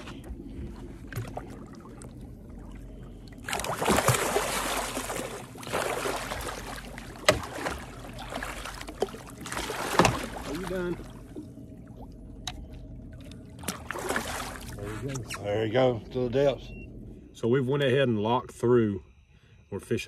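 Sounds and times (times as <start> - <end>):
fish thrashing and splashing: 3.1 - 11.6, 12.6 - 15.1.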